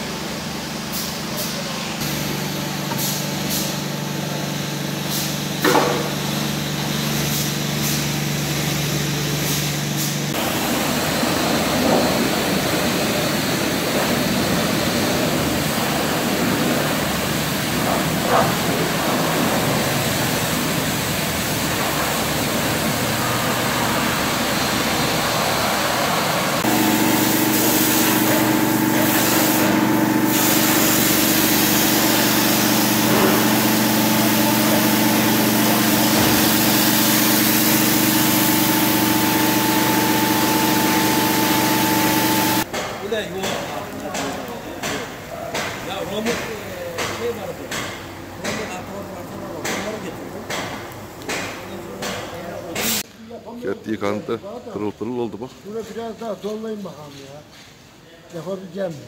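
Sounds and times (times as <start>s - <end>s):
engine hum: 0.0s - 42.7s
high-pressure water spray: 1.0s - 42.7s, 51.3s - 53.1s.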